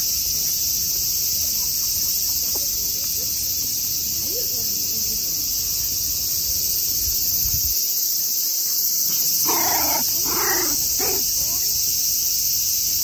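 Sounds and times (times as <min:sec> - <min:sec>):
cicadas buzzing: 0:00.0 - 0:13.0
short animal calls: 0:09.1 - 0:11.7.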